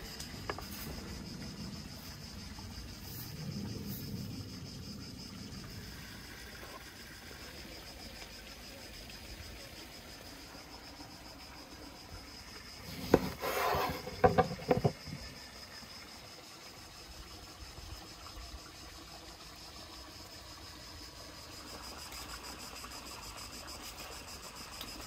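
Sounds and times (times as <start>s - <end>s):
rustling clatter: 12.9s - 15.2s.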